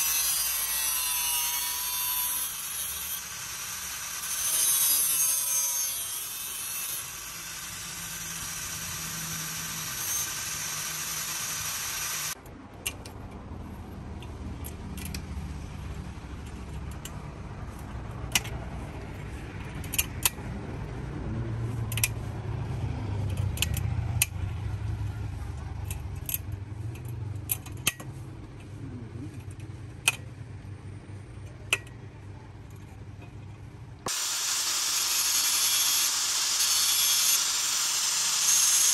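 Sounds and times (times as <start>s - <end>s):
angle grinder grinding steel: 0.0s - 12.4s, 34.1s - 38.9s
hand tool clicking on saw teeth: 14.2s - 15.3s, 18.3s - 18.6s, 19.7s - 20.4s, 21.9s - 22.2s, 23.2s - 24.4s, 25.8s - 28.1s.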